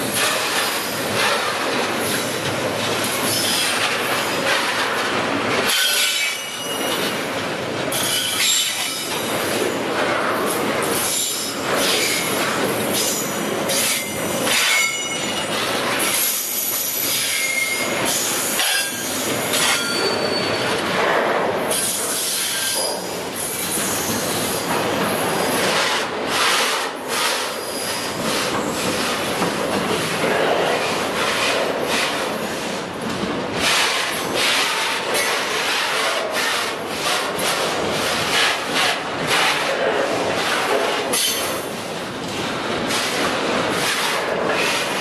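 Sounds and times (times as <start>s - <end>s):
train wheels rumbling on rails: 0.0s - 45.0s
high-pitched wheel squeals: 17.2s - 17.9s.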